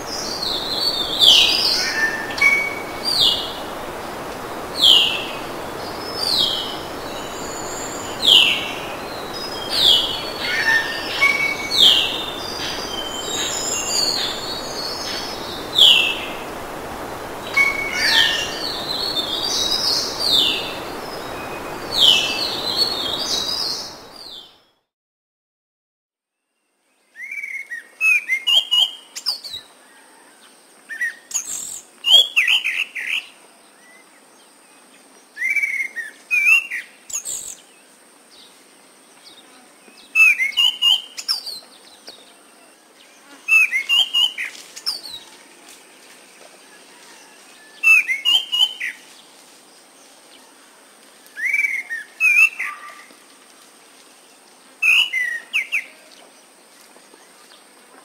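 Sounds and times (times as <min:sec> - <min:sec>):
thrush singing whistled notes: 0:00.0 - 0:24.7.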